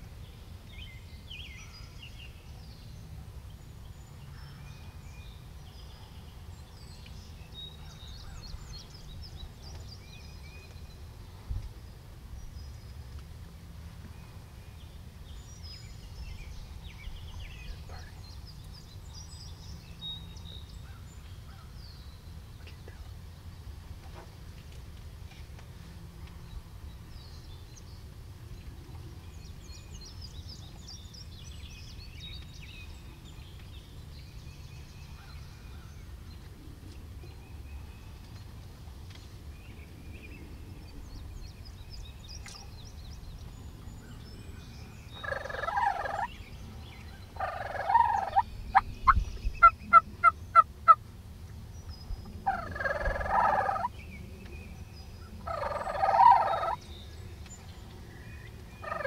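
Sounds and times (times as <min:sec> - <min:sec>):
songbirds chirping faintly: 0:00.0 - 0:59.0
turkey gobbling: 0:45.2 - 0:46.3, 0:47.4 - 0:48.8, 0:49.6 - 0:50.6, 0:52.5 - 0:53.9, 0:55.5 - 0:56.8.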